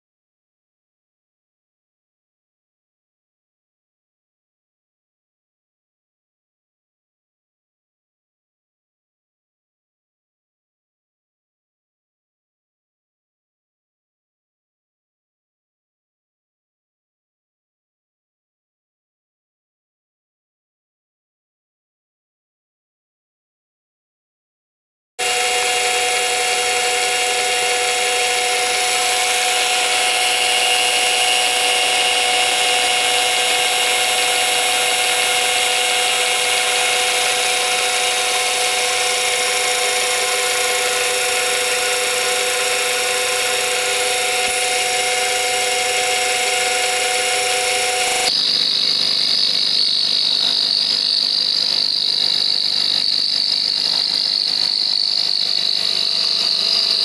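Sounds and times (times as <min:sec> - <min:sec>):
harsh hissing metal cutting: 0:25.2 - 0:57.0
milling machine whine: 0:25.2 - 0:57.0.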